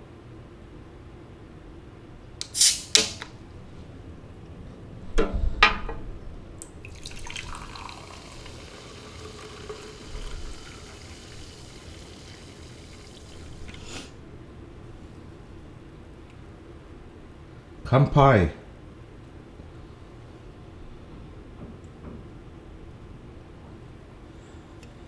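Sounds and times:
carbonated drink pouring and fizzing: 6.6s - 14.2s.

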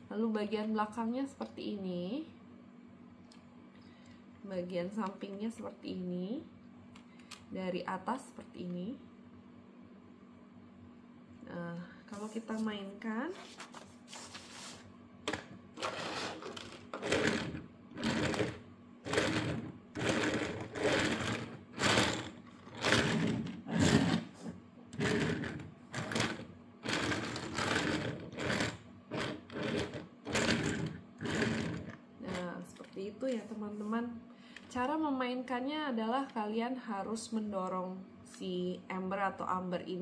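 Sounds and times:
plastic toy wheels rolling on table: 15.3s - 32.0s.

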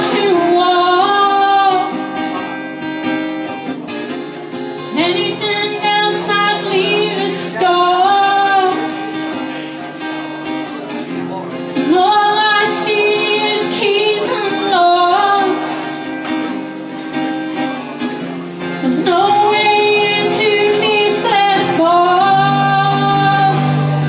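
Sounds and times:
woman singing into microphone: 0.0s - 2.4s, 4.9s - 9.4s, 11.8s - 16.1s, 18.8s - 24.0s
acoustic guitar strumming: 0.0s - 24.0s.

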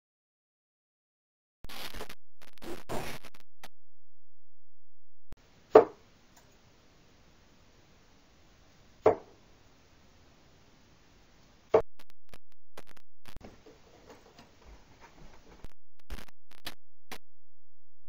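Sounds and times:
rough muffled noise: 1.7s - 4.6s
darts thudding into dartboard: 5.7s - 6.0s, 9.0s - 9.3s.

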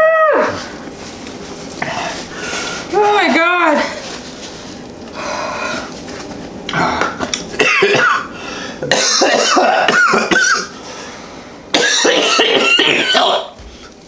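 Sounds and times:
man coughing hard: 7.6s - 10.8s, 11.7s - 13.6s.

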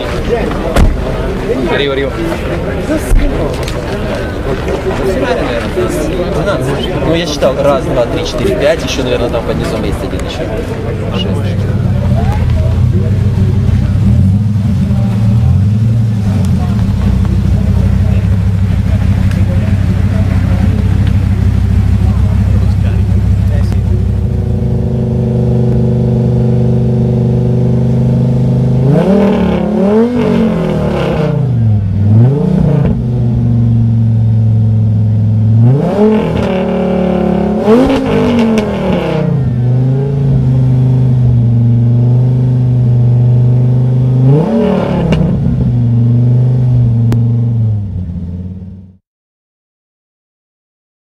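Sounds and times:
car engine idling and revving: 0.0s - 49.0s.

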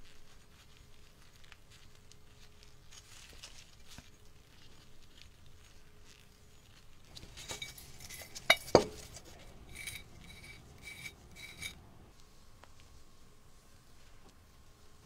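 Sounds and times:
rubbing and scraping on teapot: 0.0s - 12.1s
scraping strokes with ringing note: 7.4s - 11.8s.

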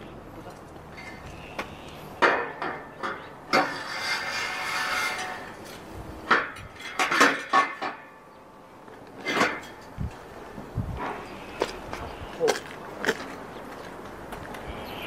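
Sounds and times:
metal tubing clanking: 2.2s - 8.2s
metal scraping slide: 3.5s - 8.0s.

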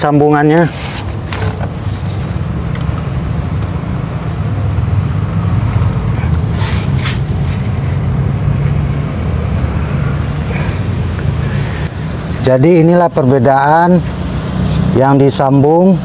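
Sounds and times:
short rustle: 0.6s - 2.4s.

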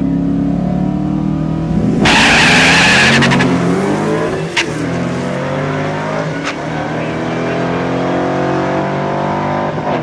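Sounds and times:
car engines idling and revving: 0.0s - 10.0s
cars launching: 1.6s - 8.8s.

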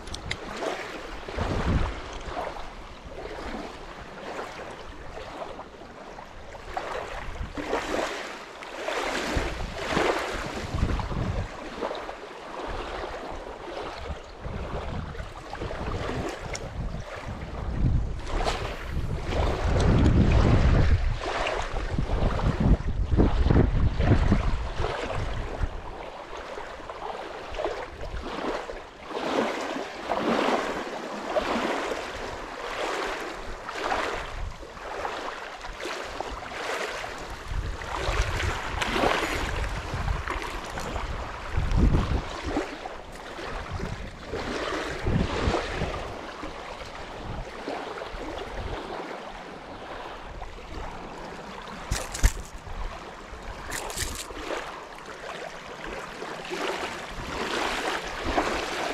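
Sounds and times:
wind buffeting microphone: 0.0s - 5.4s, 6.4s - 8.0s, 9.1s - 11.8s, 12.7s - 26.0s, 36.1s - 49.1s, 49.7s - 54.6s
small waves lapping: 0.0s - 58.9s
fish splashing at surface: 51.8s - 52.7s, 53.6s - 54.6s.

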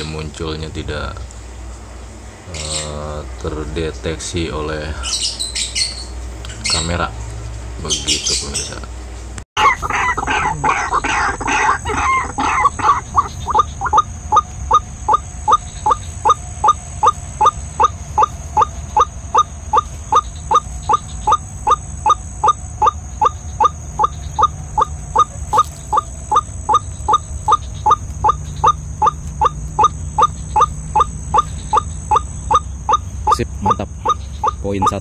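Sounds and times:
waterhen calling: 9.6s - 35.0s.

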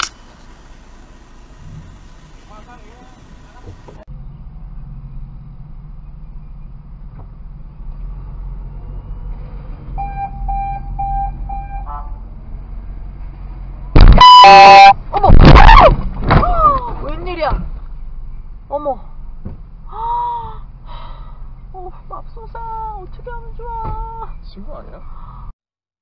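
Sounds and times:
short electronic beeps: 10.0s - 12.0s, 14.0s - 15.0s
car horn blast: 10.0s - 12.2s, 14.0s - 15.0s.

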